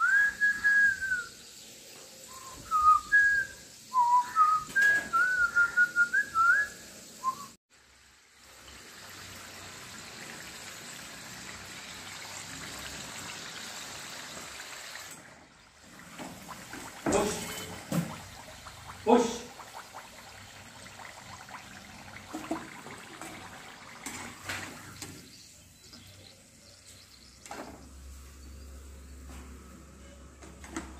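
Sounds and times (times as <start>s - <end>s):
person whistling a tune: 0.0s - 1.3s, 2.3s - 7.6s
food deep-frying in hot oil: 0.0s - 28.2s.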